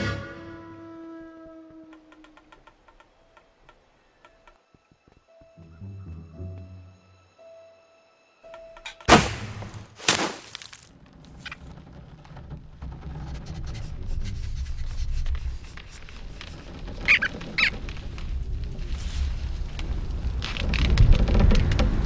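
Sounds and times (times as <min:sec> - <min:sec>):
short high squeaks: 0:16.2 - 0:17.8
low rumble: 0:17.8 - 0:22.0.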